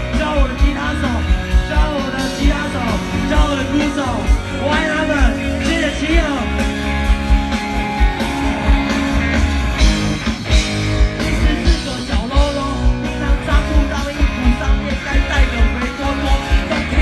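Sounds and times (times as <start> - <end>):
rock band playing: 0.0 - 17.0
person singing: 11.3 - 17.0.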